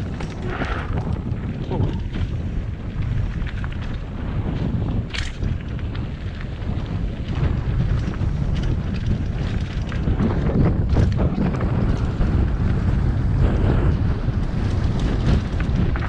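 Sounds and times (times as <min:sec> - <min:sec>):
bike clicks and rattles: 0:00.0 - 0:16.0
tyres rumbling over dirt: 0:00.0 - 0:16.0
wind buffeting microphone: 0:00.0 - 0:16.0.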